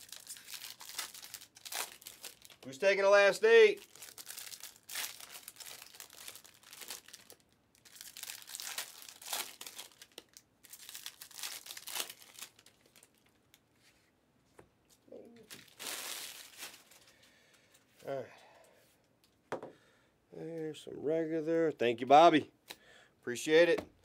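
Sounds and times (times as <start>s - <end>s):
trading cards crinkling and rustling: 0.0s - 14.0s, 14.9s - 17.9s.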